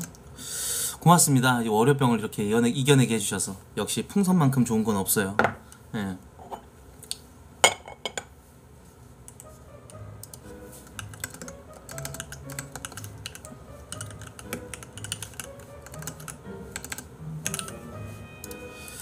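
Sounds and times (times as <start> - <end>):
soft background music: 9.0 - 19.0
keyboard typing: 10.2 - 19.0.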